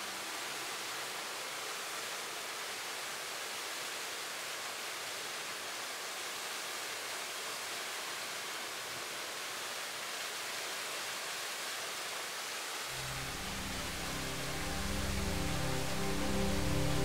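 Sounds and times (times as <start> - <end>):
waterfall rushing: 0.0 - 17.0.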